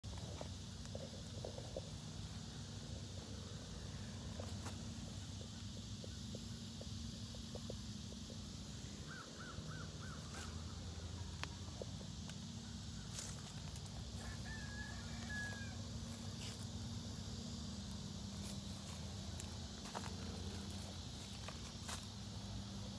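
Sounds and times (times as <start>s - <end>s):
steady low hum: 0.0s - 22.9s.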